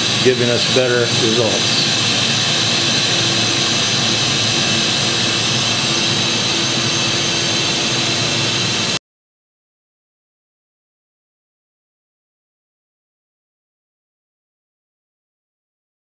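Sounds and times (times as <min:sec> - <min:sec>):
machining center hiss and hum: 0:00.0 - 0:09.0.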